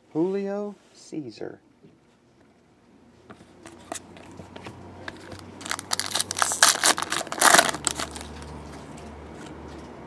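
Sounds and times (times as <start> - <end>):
foil wrapper crinkling and tearing: 5.3 - 8.5.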